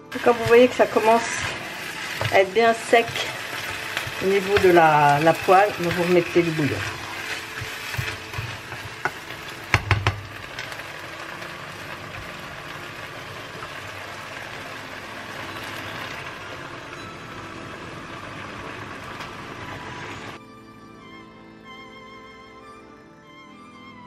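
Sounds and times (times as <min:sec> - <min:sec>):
rice and sausage sizzling in pan: 0:00.0 - 0:20.4
plastic spatula scraping a pan: 0:00.2 - 0:09.8.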